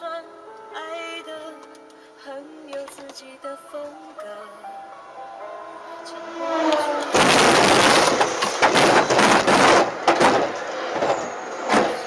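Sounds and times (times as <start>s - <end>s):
metal scraping and rattling: 6.7s - 12.0s
train crashing into car: 7.1s - 12.0s
sharp knocks: 7.2s - 12.0s.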